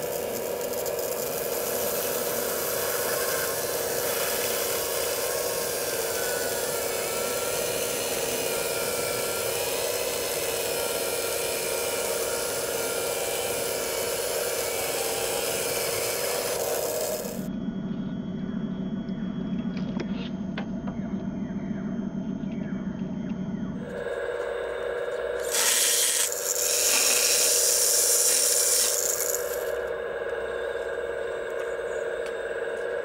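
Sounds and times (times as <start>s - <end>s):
small saw rasping through wood: 0.0s - 17.5s, 25.4s - 29.8s.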